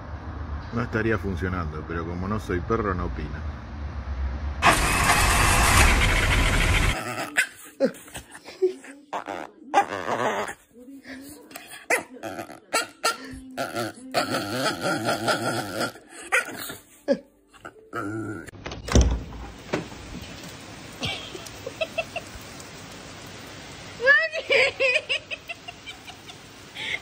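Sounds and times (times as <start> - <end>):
puppy growling playfully: 6.6 - 10.7, 11.6 - 16.9, 17.6 - 18.5.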